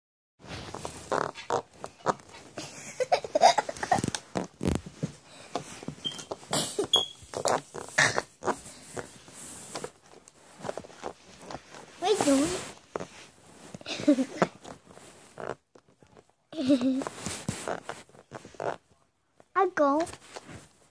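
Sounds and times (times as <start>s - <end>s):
baby vocal sounds and breaths: 10.6s - 14.6s.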